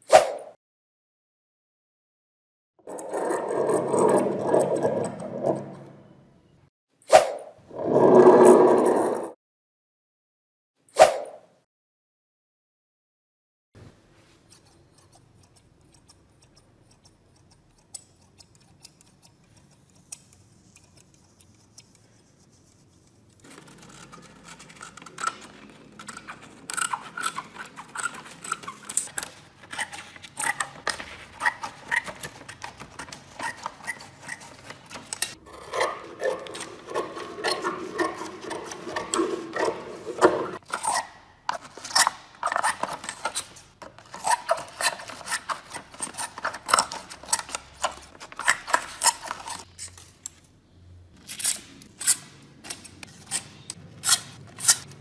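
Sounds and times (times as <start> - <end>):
scissors snipping paper: 14.4 - 50.4, 51.2 - 55.0.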